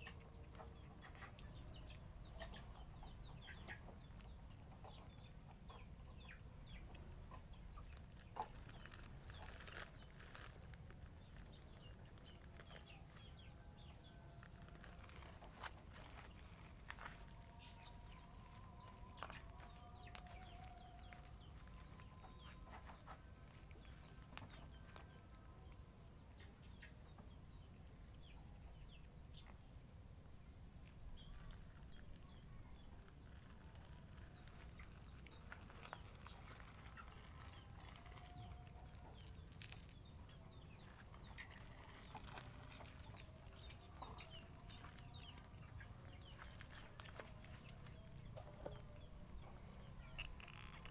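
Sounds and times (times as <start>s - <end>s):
chickens clucking: 0.0s - 29.6s, 31.2s - 50.9s
cats crunching dry kibble: 7.8s - 13.4s, 14.3s - 25.3s, 30.8s - 50.9s.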